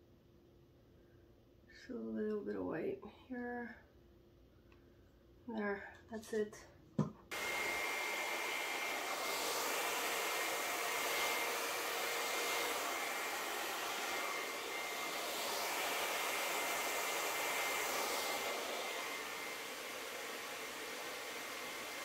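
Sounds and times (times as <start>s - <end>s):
blow dryer running: 7.3s - 22.0s.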